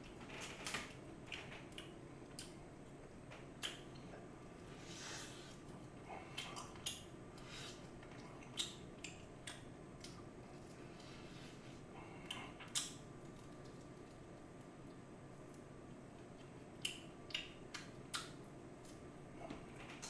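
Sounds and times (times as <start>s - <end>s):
crunching and chewing food: 0.0s - 20.0s
faint background hiss: 0.0s - 20.0s.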